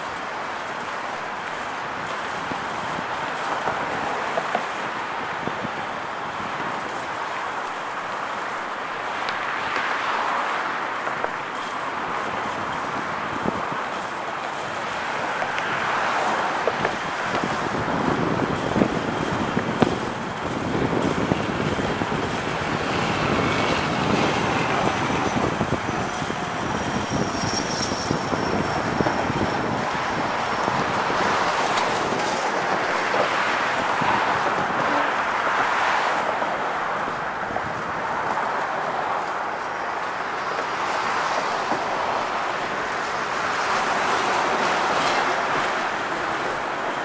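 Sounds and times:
road and wind noise: 0:00.0 - 0:47.0.

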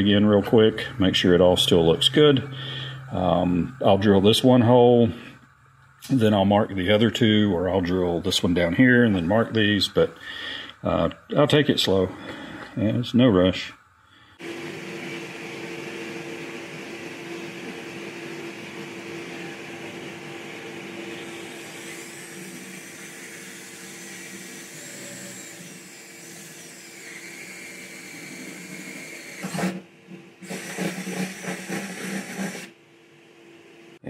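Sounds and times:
cordless drill boring into wood: 0:21.2 - 0:29.8, 0:30.4 - 0:32.7.

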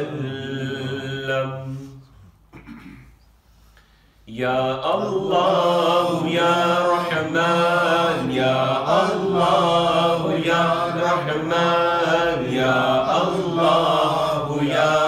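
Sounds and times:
man chanting into a microphone: 0:00.0 - 0:02.1.

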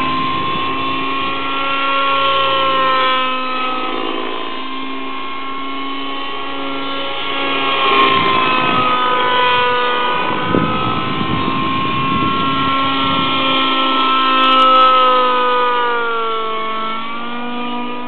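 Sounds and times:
rc helicopter engine whine: 0:00.0 - 0:18.0.

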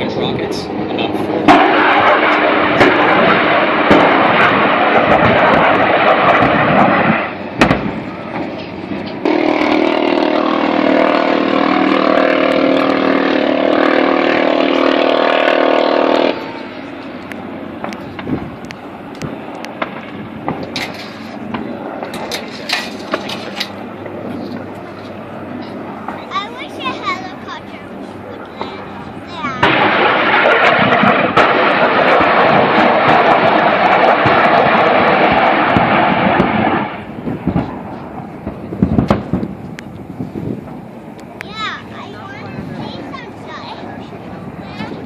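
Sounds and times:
wind noise: 0:00.0 - 0:27.1, 0:27.9 - 0:45.0
distant helicopter engine: 0:00.0 - 0:45.0
flares popping: 0:00.0 - 0:45.0
impact bangs and thumps: 0:01.5 - 0:09.1.

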